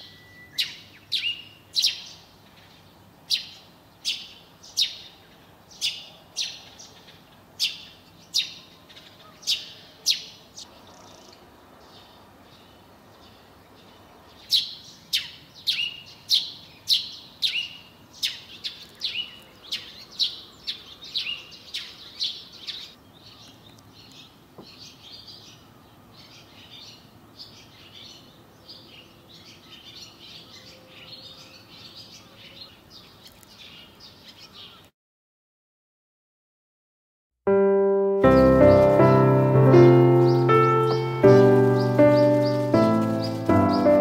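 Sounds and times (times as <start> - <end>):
small bird calling: 0.0 - 12.7.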